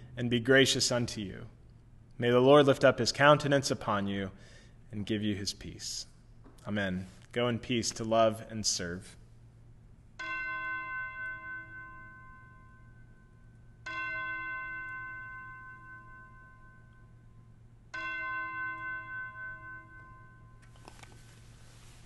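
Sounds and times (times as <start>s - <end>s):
bell ringing: 10.2s - 20.8s.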